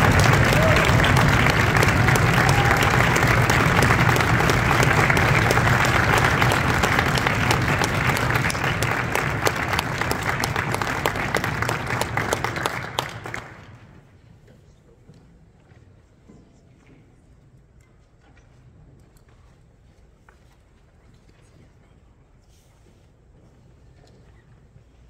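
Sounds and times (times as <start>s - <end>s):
audience applauding: 0.0s - 13.9s.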